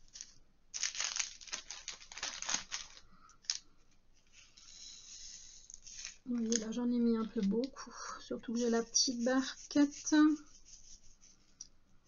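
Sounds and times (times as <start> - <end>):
plastic beads rattling into a tray: 0.0 - 3.6
hissing rustle of beads: 4.2 - 7.5.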